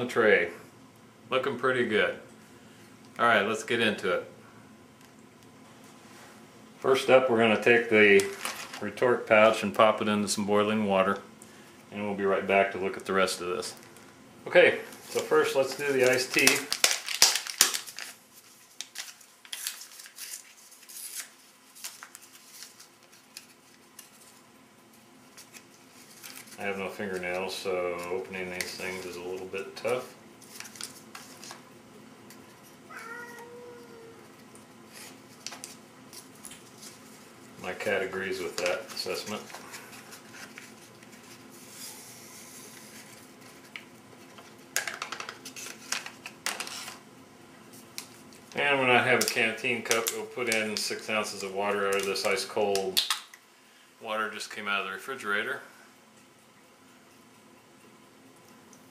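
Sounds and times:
packet crinkling and rustling: 7.6s - 9.0s, 14.9s - 24.5s, 25.3s - 32.6s, 34.9s - 41.8s, 42.6s - 47.0s, 47.8s - 53.3s
packet crinkles and clicks: 15.2s - 24.4s, 49.2s - 53.4s.

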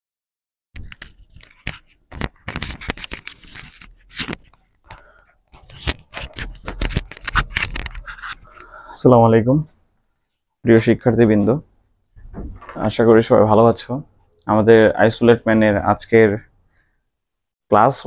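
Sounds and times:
scraping and rustling: 0.8s - 8.6s.

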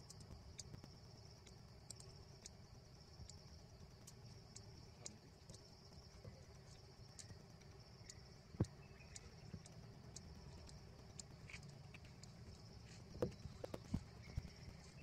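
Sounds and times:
faint regular ticks: 0.0s - 15.0s
high insect drone: 0.0s - 15.0s.

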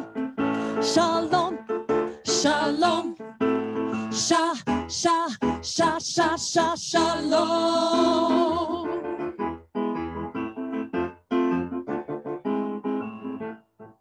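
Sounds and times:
electronic keyboard chords: 0.0s - 4.0s, 7.5s - 14.0s
women singing with vibrato: 0.7s - 3.2s, 4.0s - 9.2s.

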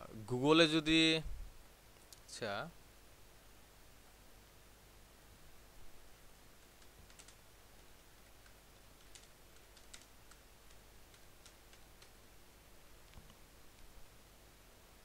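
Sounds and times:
faint keyboard typing: 6.4s - 14.0s.

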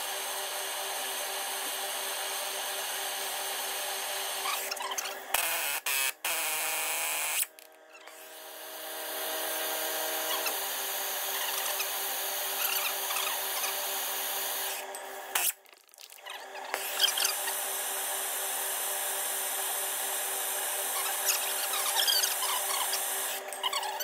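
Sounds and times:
gas torch hissing: 16.7s - 24.0s.

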